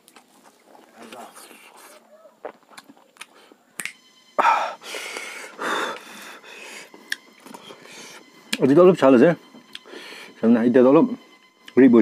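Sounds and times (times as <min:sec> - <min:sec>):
dry flatbread crackling: 0:00.0 - 0:03.5.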